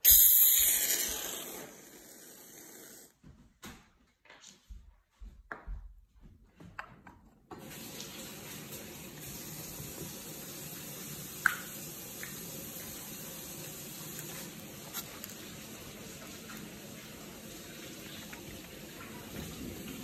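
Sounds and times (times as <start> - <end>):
running water rushing: 7.6 - 20.0.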